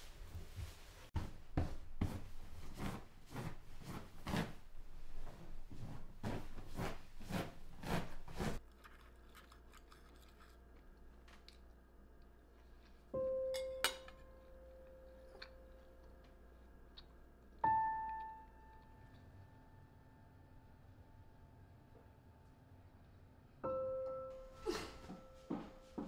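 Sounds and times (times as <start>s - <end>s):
floor scrubbing by hand: 0.0s - 8.6s.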